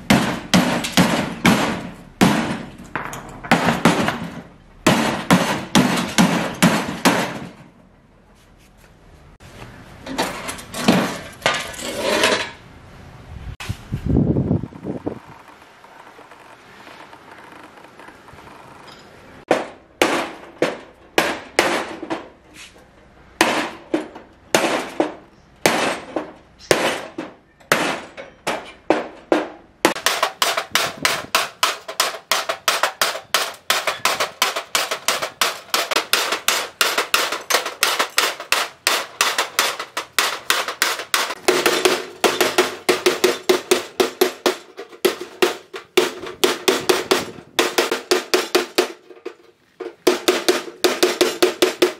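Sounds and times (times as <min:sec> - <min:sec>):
hammer striking sheet steel: 0:00.0 - 0:07.7, 0:18.9 - 0:22.4, 0:23.4 - 0:51.9.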